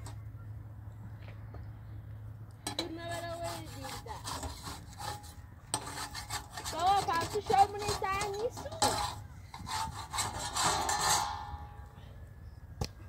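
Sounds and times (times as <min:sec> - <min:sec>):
hand scraping wood: 0:02.7 - 0:11.8.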